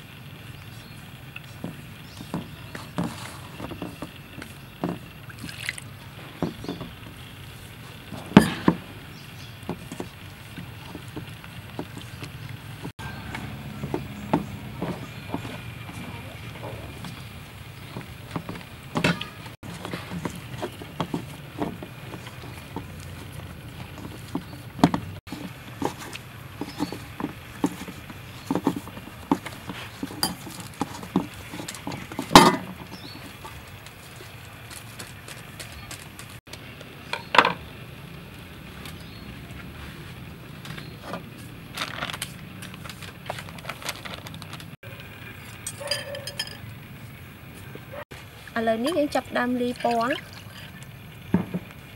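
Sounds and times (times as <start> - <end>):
hands kneading flour: 9.0 - 36.4.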